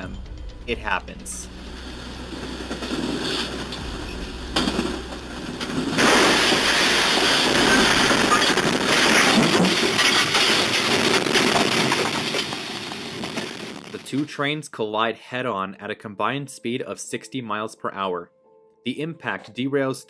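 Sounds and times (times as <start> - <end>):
locomotive cab noise: 0.0 - 13.8
loud train crash: 0.0 - 14.3
crashing and grinding metal: 1.5 - 13.9.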